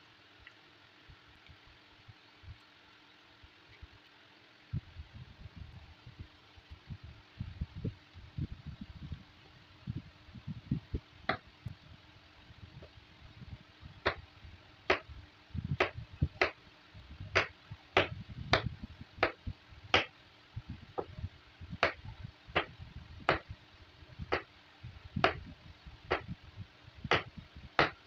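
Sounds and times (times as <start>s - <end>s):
soft low thuds: 4.8s - 28.0s
knife chopping on wooden board: 17.4s - 19.4s, 21.8s - 22.0s, 25.2s - 25.5s, 27.1s - 28.0s.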